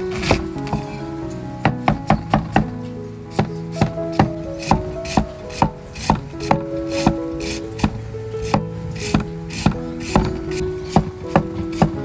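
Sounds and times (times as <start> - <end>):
cleaver chopping on wooden block: 3.8 - 7.2, 7.8 - 12.0.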